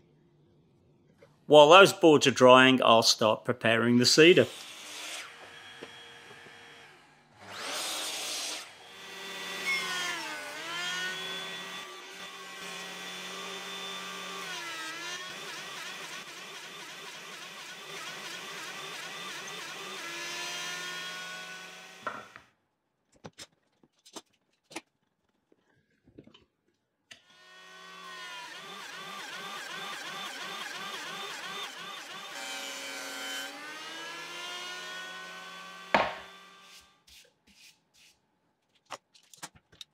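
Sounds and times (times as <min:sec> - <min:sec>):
miter saw cutting wood: 0:04.2 - 0:22.4, 0:27.1 - 0:37.0
thickness planer whining: 0:04.4 - 0:22.4, 0:27.1 - 0:37.0.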